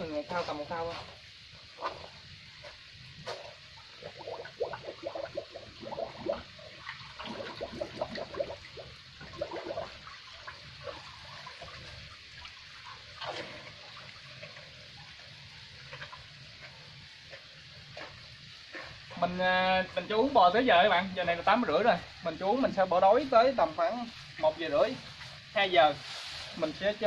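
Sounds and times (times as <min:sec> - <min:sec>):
cow slurping liquid: 0:01.6 - 0:19.1.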